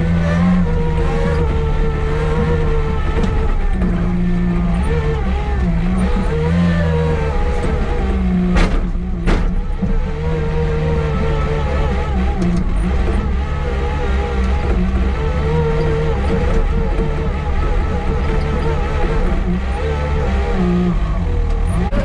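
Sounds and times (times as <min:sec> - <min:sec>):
wheel loader diesel engine: 0:00.0 - 0:22.0
sharp knocks: 0:07.3 - 0:10.3.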